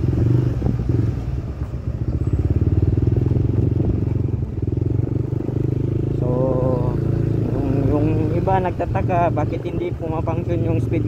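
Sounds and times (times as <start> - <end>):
scooter engine running: 0.0 - 11.0.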